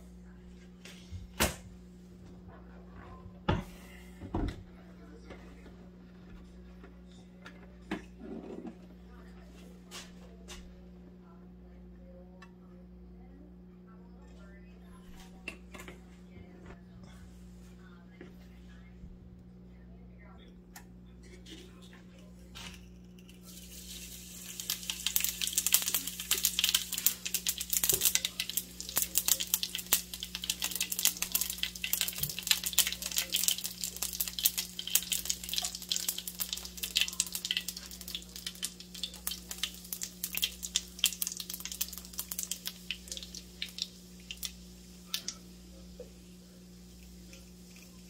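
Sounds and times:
spice seeds crackling in hot oil: 23.3 - 48.0.

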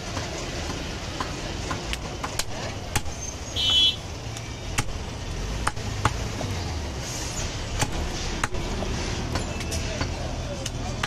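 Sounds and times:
cleaver chopping meat on wood: 0.0 - 3.1, 4.8 - 5.0, 5.6 - 6.3, 7.8 - 8.6.

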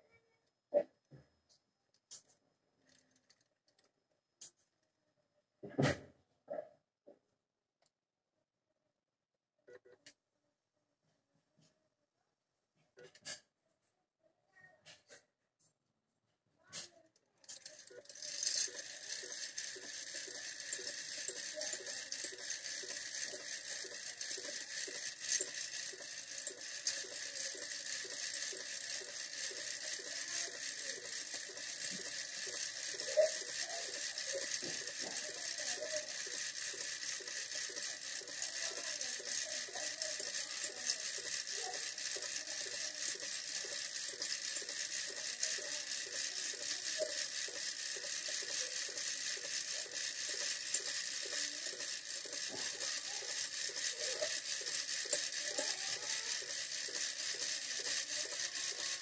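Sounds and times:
coil winding machine whirring: 17.4 - 59.0.

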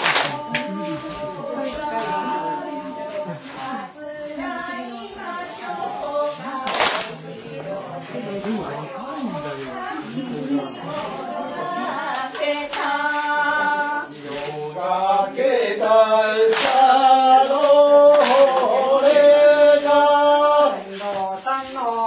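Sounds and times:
sharp hand claps: 0.0 - 0.7, 6.6 - 7.1, 16.5 - 16.9, 17.6 - 18.7
person singing folk song: 0.0 - 22.0.

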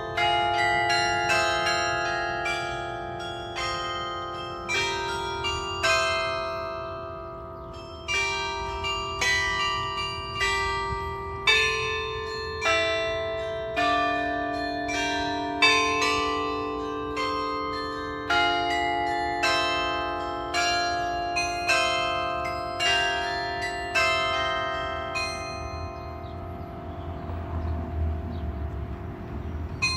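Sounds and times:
tower bells playing slow melody: 0.0 - 29.9.

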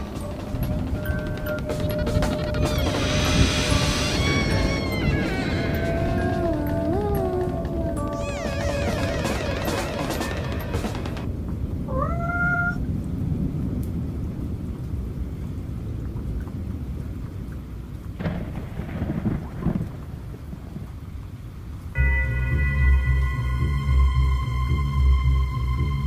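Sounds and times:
rumbling thunder: 0.0 - 15.4, 18.2 - 21.2
rain: 0.0 - 26.0
cat meowing: 2.6 - 6.8, 11.9 - 12.9.

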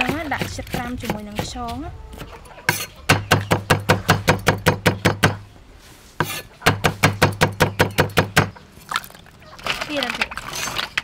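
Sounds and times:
cleaver chopping on wooden board: 0.0 - 5.4.

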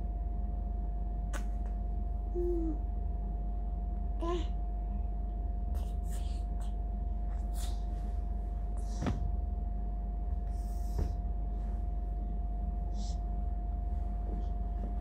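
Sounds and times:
steady low hum: 0.0 - 15.0
fabric swishing: 7.9 - 9.4.

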